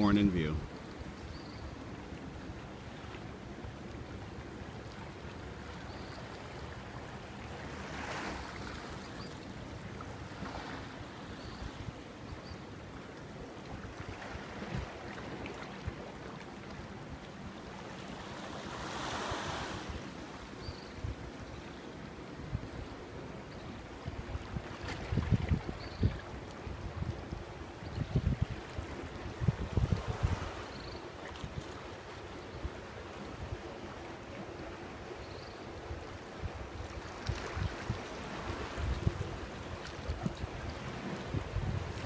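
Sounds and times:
surf washing on shoreline: 0.0 - 42.0
wind on microphone: 13.7 - 16.0, 24.0 - 30.8, 36.0 - 42.0.

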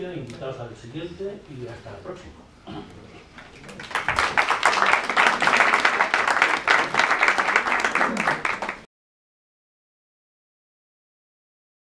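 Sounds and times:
audience applauding: 3.4 - 8.9.

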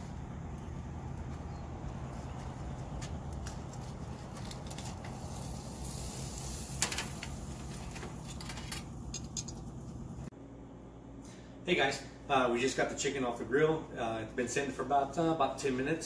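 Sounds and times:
metal tongs clinking on grates: 8.2 - 9.7.

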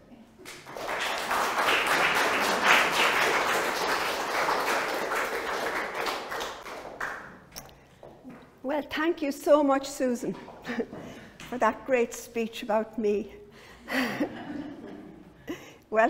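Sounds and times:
audience applauding: 0.4 - 7.5.

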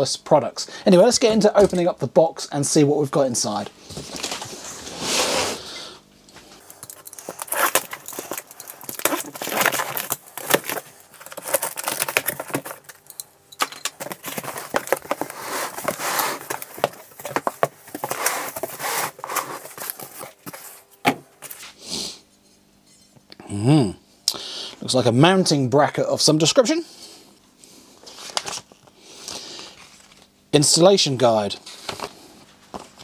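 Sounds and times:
cardboard flaps rustling and scraping: 3.8 - 5.6, 7.1 - 13.0, 13.9 - 21.7
tape tearing: 6.6 - 20.8
knife slitting packing tape: 6.8 - 13.0, 13.9 - 20.3.

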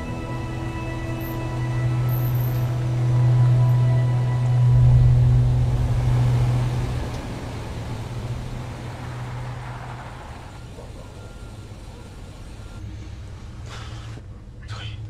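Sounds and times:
low music drone: 0.0 - 12.0
suv engine driving away: 0.0 - 14.5.

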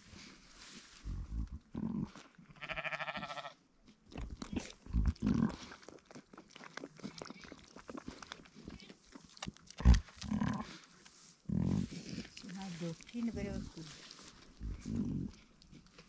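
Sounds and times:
high quavering sheep bleat: 2.6 - 3.6
low sheep call: 2.6 - 3.6
wet licking and crunching: 3.8 - 16.0.

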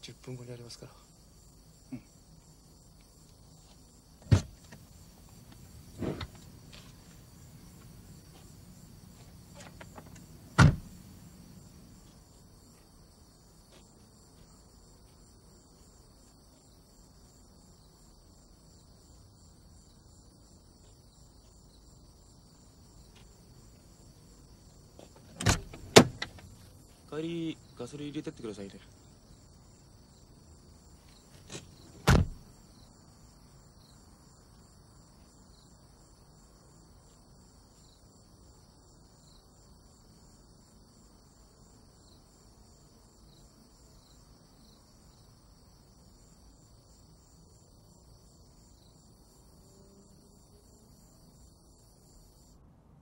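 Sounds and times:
crickets chirring: 0.0 - 53.0
car door opening and shutting: 4.2 - 4.8, 6.0 - 6.4, 9.5 - 11.0, 25.2 - 26.6, 31.4 - 32.4.

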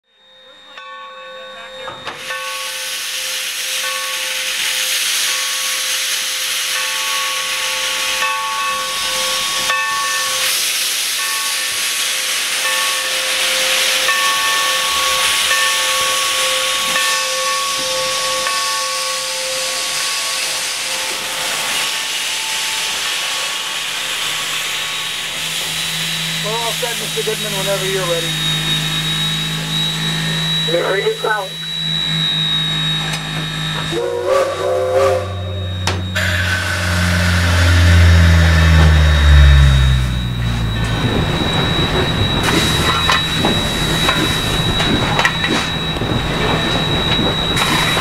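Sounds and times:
steam locomotive hissing: 0.8 - 48.0
faint ringing tones: 12.4 - 48.0.

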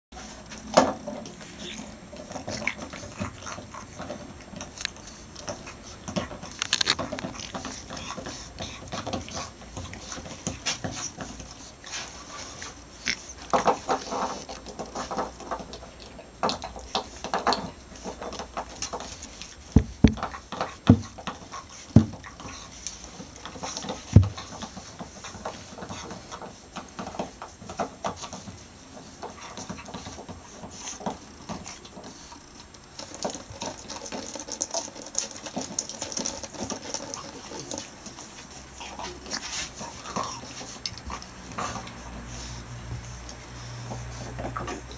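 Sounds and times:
puppies scuffling and grunting: 0.2 - 44.9.

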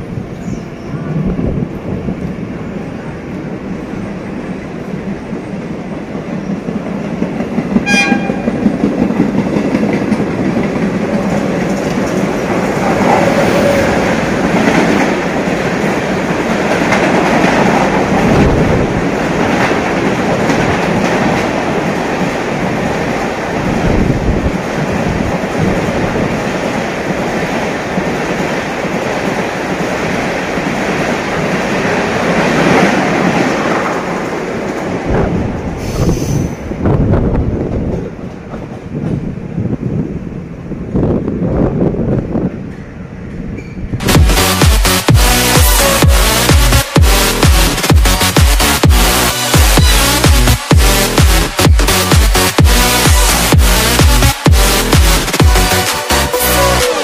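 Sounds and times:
train rumbling on tracks: 0.0 - 57.0
train horn blast: 7.8 - 8.7, 45.2 - 47.4.

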